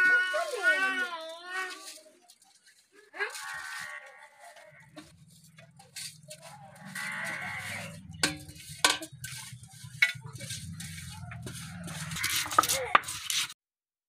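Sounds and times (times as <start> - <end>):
metal plate scratching on stone: 4.5 - 13.6
metal clinking on stone: 7.8 - 13.2.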